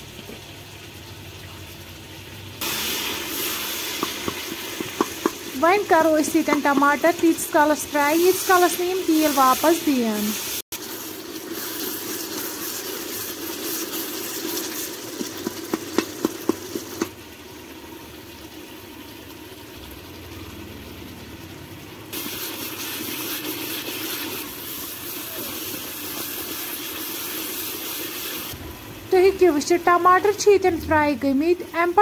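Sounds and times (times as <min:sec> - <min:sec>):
tomatoes sizzling in hot oil: 0:00.0 - 0:32.0
spatula knocking on metal pot: 0:04.0 - 0:05.4.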